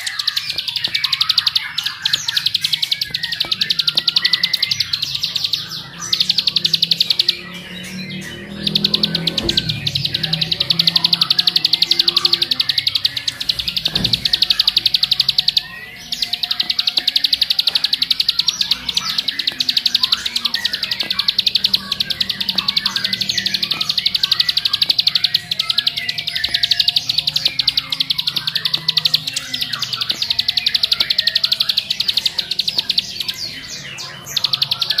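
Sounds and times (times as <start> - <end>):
bird singing fast buzzing trill: 0.0 - 35.0.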